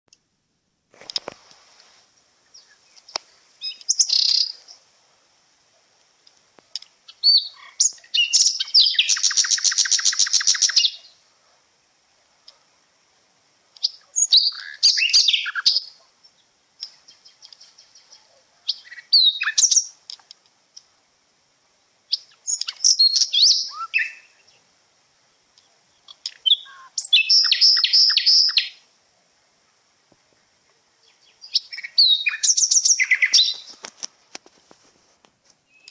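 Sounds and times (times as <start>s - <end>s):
faint high-pitched whine: 0.1s - 35.9s
birds chirping and whistling: 2.5s - 4.6s, 7.2s - 11.1s, 13.8s - 15.9s, 18.7s - 19.9s, 22.1s - 24.6s, 26.1s - 28.8s, 31.0s - 33.8s, 35.7s - 35.9s
bird trill: 3.6s - 4.6s, 7.1s - 11.2s, 13.8s - 16.0s, 16.8s - 19.9s, 22.1s - 24.6s, 26.0s - 28.8s, 31.0s - 33.7s.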